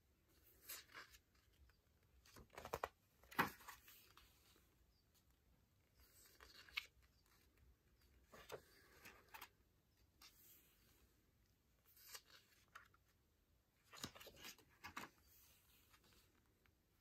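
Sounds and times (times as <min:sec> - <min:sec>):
pages turning: 0:00.4 - 0:04.4, 0:06.0 - 0:07.5, 0:08.2 - 0:09.6, 0:11.8 - 0:13.1, 0:13.8 - 0:16.5.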